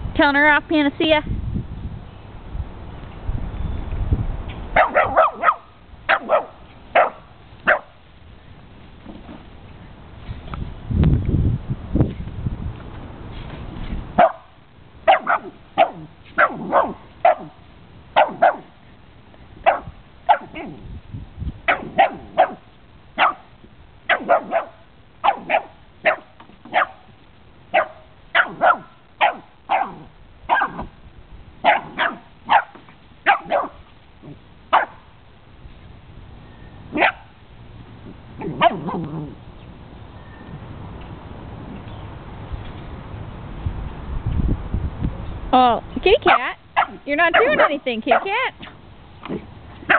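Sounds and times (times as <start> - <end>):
dog barking: 4.8 - 8.0, 14.2 - 17.6, 18.2 - 18.8, 19.6 - 20.8, 21.7 - 22.6, 23.2 - 23.5, 24.1 - 27.1, 27.7 - 30.9, 31.6 - 33.8, 34.7 - 35.0, 36.9 - 37.3, 38.4 - 39.0, 46.3 - 48.3
dog low long vocalisation: 38.0 - 39.5.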